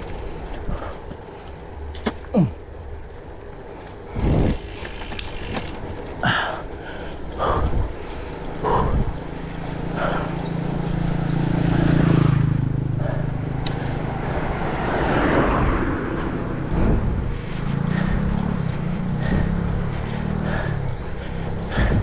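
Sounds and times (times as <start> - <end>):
bike road rumble: 0.0 - 22.0
motor vehicle engine passing: 2.7 - 22.0
wind on camera microphone: 4.1 - 4.7.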